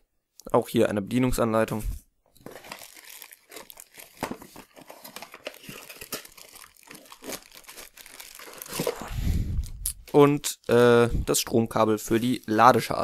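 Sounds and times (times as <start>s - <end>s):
cardboard packing rustling: 2.3s - 9.1s.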